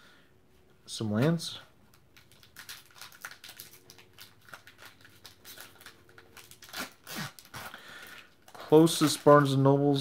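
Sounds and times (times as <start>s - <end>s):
foil wrapper crinkling: 1.9s - 9.8s.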